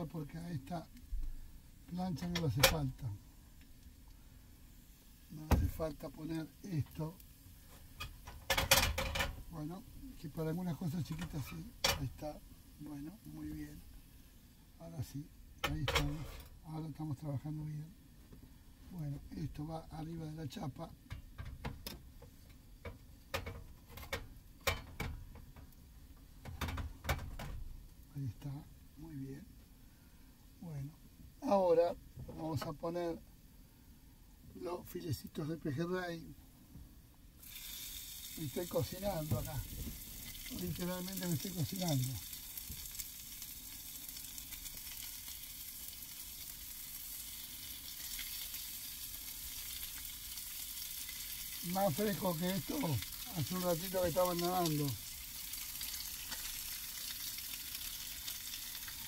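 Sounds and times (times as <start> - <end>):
fish sizzling in a pan: 0.0 - 16.7, 37.3 - 59.0
garlic crackling in oil: 37.4 - 59.0.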